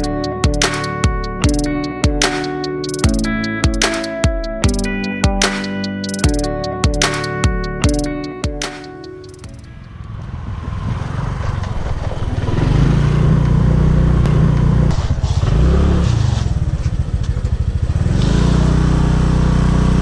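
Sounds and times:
motorbike engine running: 9.4s - 20.0s.

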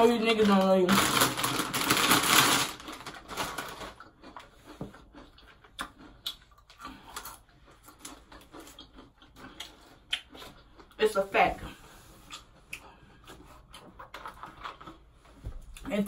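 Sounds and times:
chewing and lip smacking: 4.0s - 11.0s, 12.2s - 15.9s.

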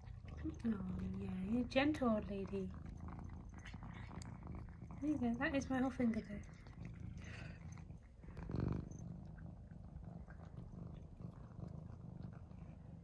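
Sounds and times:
cat licking: 0.0s - 13.0s
cat purring: 0.0s - 13.0s.

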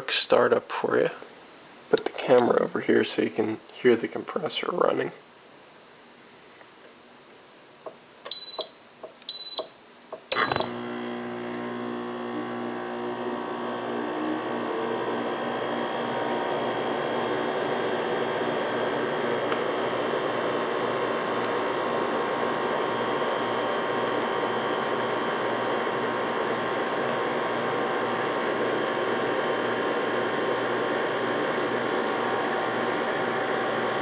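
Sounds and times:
compressor humming: 7.8s - 34.0s
control pad beeps: 10.4s - 10.7s.

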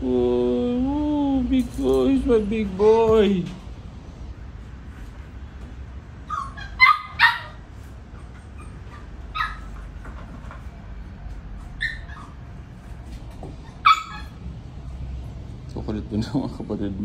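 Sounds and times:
puppies yapping: 6.2s - 14.6s.

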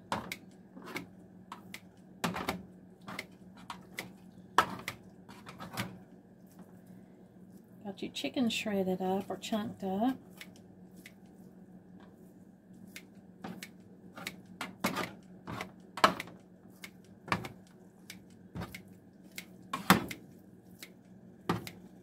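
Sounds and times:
kitchen shears snipping: 12.9s - 17.1s.

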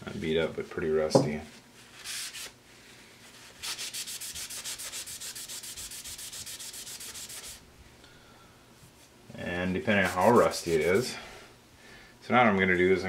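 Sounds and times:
rag rubbing on metal table: 10.0s - 11.2s.

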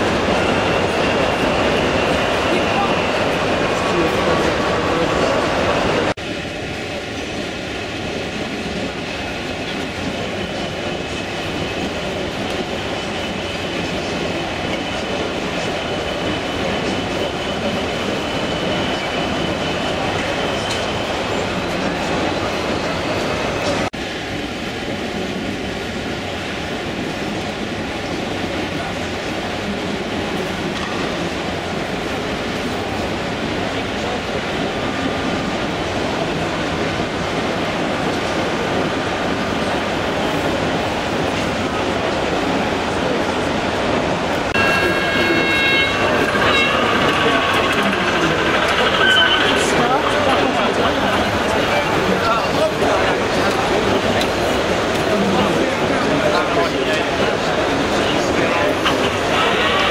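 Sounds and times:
busy hall din: 0.0s - 59.9s
model train rolling rumble: 44.5s - 59.9s.

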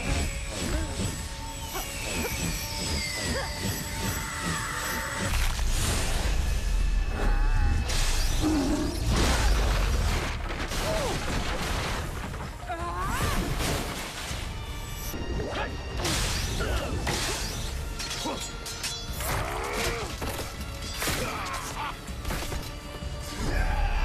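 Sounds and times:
music: 0.0s - 24.0s.

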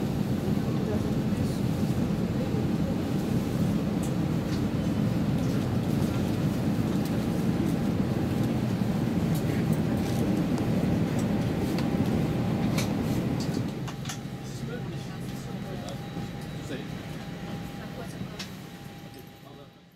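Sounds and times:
aircraft cabin air-conditioning hum: 0.0s - 19.9s
faint voices: 0.1s - 4.3s, 9.0s - 19.8s.

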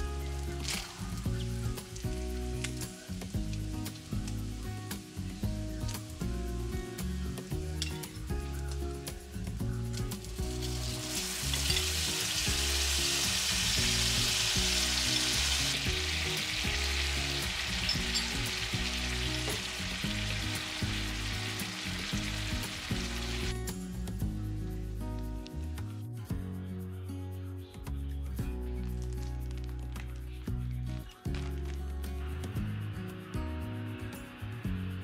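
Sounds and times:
meat sizzling in a frying pan: 0.0s - 23.6s
soft background music: 0.0s - 35.0s.

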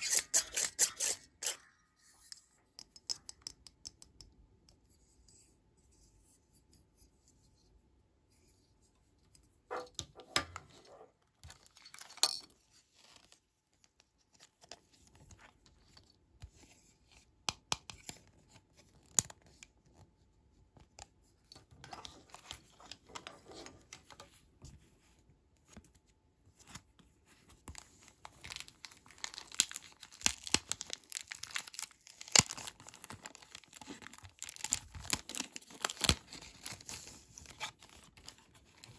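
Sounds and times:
plastic bag crinkling: 28.3s - 36.8s.

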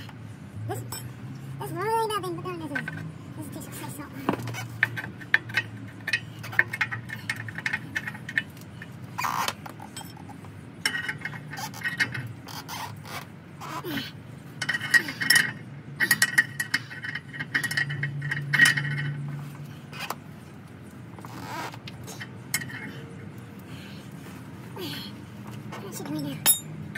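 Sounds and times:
ratchet wrench metallic clicks: 4.6s - 12.4s, 26.4s - 26.7s.

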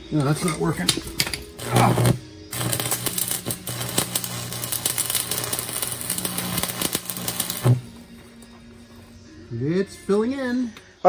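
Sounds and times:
welding arc crackling: 0.4s - 9.1s.

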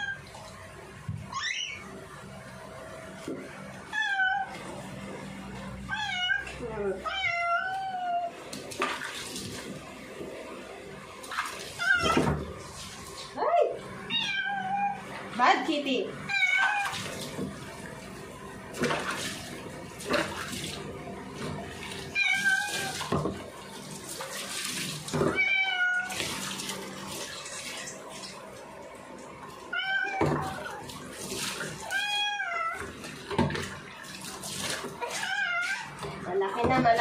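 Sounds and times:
running tap water: 0.0s - 37.0s
cat meowing: 3.9s - 4.6s, 5.9s - 8.3s, 14.1s - 15.0s, 16.3s - 17.0s, 22.1s - 23.1s, 25.3s - 26.2s, 29.7s - 30.7s, 31.8s - 32.8s, 35.0s - 36.0s.

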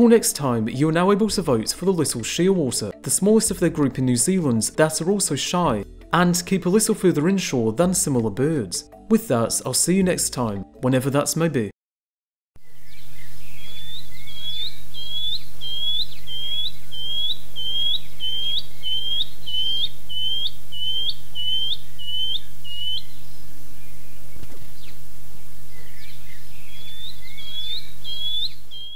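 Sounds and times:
cuckoo whistling calls: 12.6s - 25.0s, 25.7s - 28.9s
other birds calling: 12.6s - 28.9s.

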